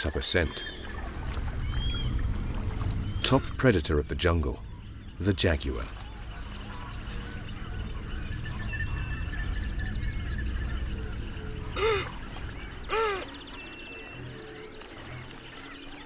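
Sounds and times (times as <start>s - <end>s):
low rumble of ambience: 0.7s - 15.5s
faint high bird chirps: 5.9s - 16.0s
honking animal calls: 11.7s - 13.4s.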